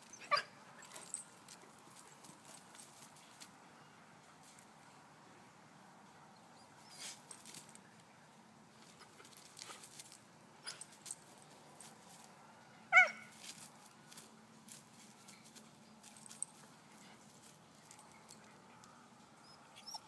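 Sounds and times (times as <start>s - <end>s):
dog whining yip: 0.1s - 0.5s, 12.9s - 13.3s, 19.4s - 20.0s.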